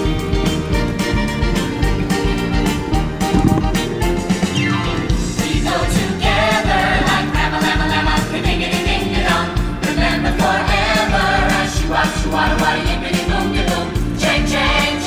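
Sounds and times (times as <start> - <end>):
upbeat music with steady beat: 3.3 - 3.8
group singing in chorus: 5.4 - 15.0.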